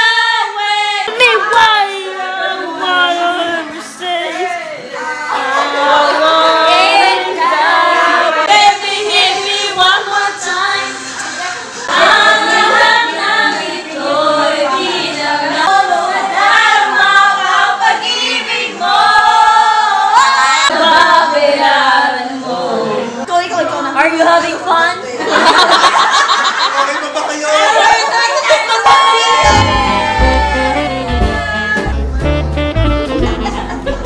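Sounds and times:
women singing together: 0.0s - 25.9s.

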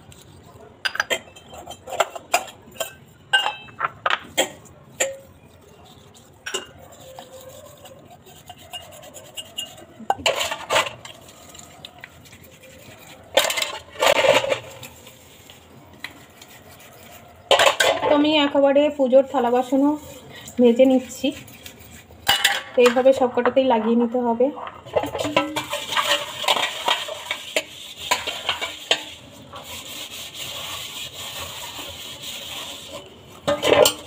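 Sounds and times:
metal vessels clattering: 0.8s - 5.5s, 6.4s - 7.1s, 7.8s - 11.7s, 12.9s - 15.1s, 17.4s - 18.6s, 22.2s - 29.8s, 30.5s - 34.0s
metal vessels clinking: 0.8s - 15.2s, 17.2s - 29.4s, 32.6s - 34.0s.

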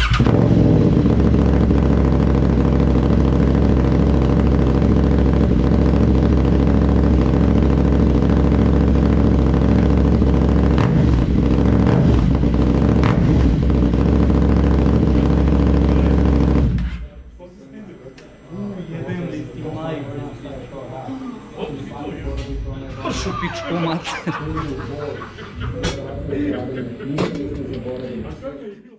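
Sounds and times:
motorcycle engine idling: 0.0s - 17.1s.

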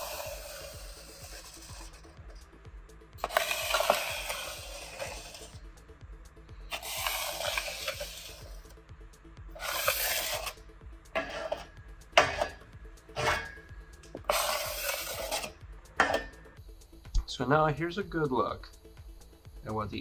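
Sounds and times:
scraper blade scraping steel: 0.0s - 2.4s, 3.2s - 5.6s, 6.7s - 8.7s, 9.5s - 10.6s, 11.2s - 13.6s, 14.2s - 16.4s.

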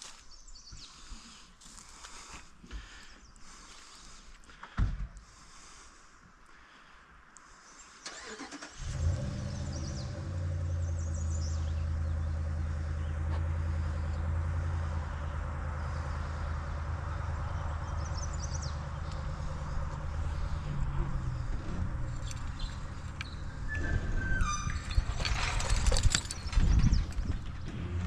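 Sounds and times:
truck engine starting and running: 8.0s - 28.0s.

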